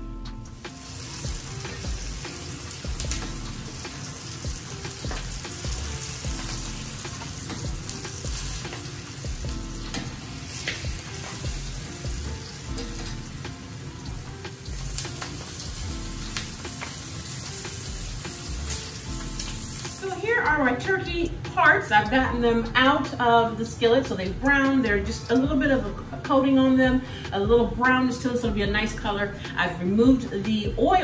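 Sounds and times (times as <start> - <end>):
food sizzling in oil: 0.5 - 20.9.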